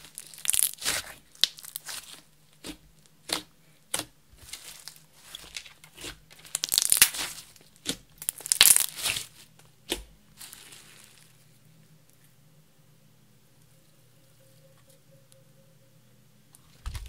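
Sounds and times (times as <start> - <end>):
slime crackling and popping: 0.0 - 10.9.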